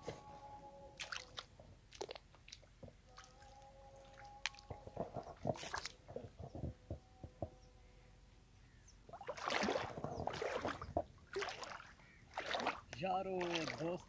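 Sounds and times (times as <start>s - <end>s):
splashing water from wading: 1.0s - 6.3s, 9.1s - 14.0s.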